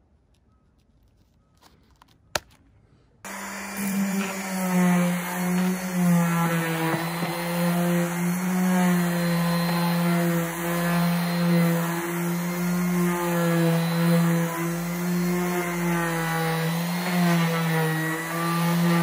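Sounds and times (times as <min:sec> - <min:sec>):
orbital sander on wood: 0:03.3 - 0:19.0.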